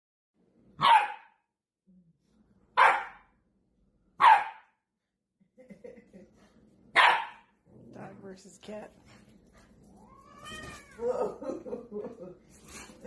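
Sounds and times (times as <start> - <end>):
dog barking: 0.8 - 1.4, 2.8 - 3.3, 4.2 - 4.8, 6.9 - 7.5.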